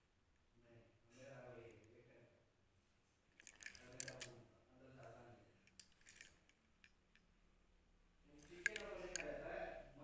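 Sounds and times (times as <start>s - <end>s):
objects being handled clicking: 3.4s - 4.4s, 5.6s - 7.3s, 8.4s - 9.3s.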